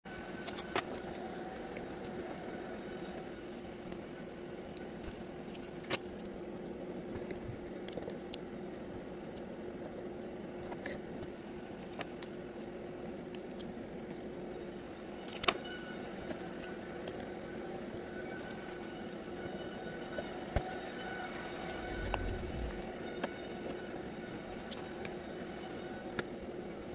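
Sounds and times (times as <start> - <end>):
steady low hum: 21.2 - 23.1.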